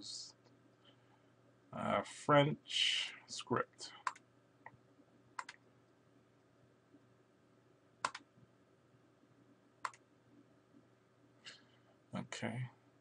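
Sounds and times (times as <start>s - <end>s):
faint low hum: 0.0s - 13.0s
computer mouse clicking: 4.0s - 4.8s, 5.4s - 5.6s, 8.0s - 8.3s, 9.8s - 10.0s.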